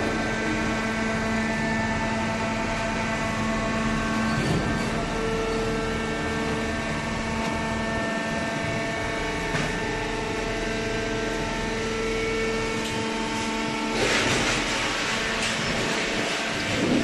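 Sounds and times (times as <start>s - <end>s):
baler machine hum: 0.0s - 17.0s
machine whine: 0.0s - 17.0s.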